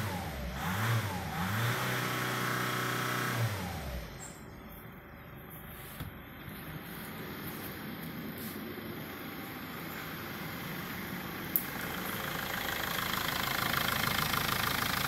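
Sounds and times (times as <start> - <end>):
diesel engine revving: 0.0 - 4.4, 8.9 - 15.0
diesel engine idling: 2.5 - 15.0.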